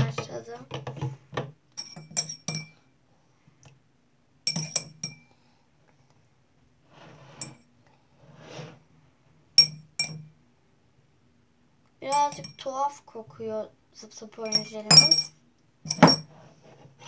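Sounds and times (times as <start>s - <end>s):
metal spoon clinking against bowl: 1.8s - 2.8s, 4.5s - 5.2s, 14.5s - 16.3s.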